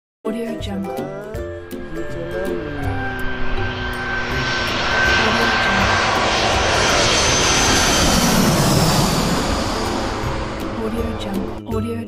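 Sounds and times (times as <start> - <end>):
high whine falling in pitch: 1.6 - 11.7
jet rushing noise: 1.6 - 11.7.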